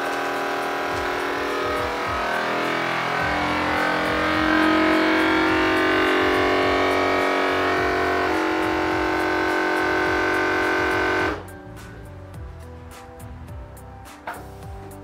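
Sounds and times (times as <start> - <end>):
vacuum sealer pump humming: 0.0 - 11.5.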